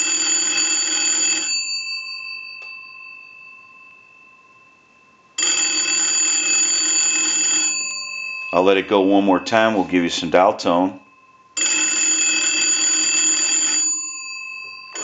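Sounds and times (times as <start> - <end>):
telephone bells ringing: 0.0 - 3.8, 5.4 - 9.0, 11.6 - 15.0.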